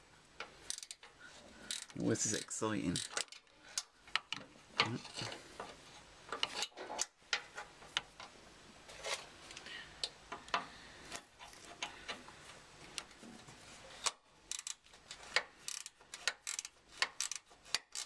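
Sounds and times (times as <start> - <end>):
ratchet spanner clicking: 0.7 - 1.1, 1.7 - 4.3, 14.0 - 18.0.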